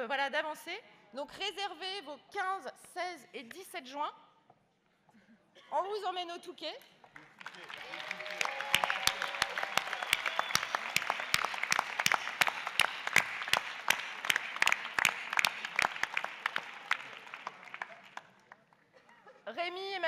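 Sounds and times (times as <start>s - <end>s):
crowd applause: 7.2s - 18.8s.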